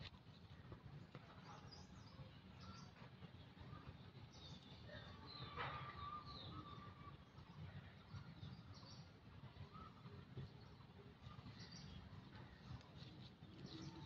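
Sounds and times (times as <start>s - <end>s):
low outdoor rumble: 0.0s - 14.0s
faint bird chirps: 3.7s - 14.0s.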